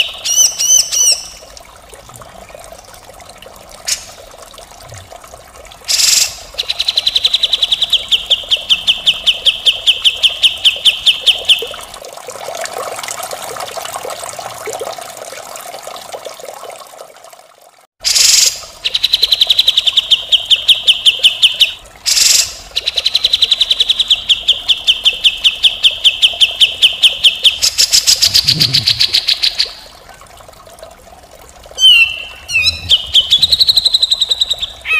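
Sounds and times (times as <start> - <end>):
bulbul singing rattling trills: 31.8 - 34.9.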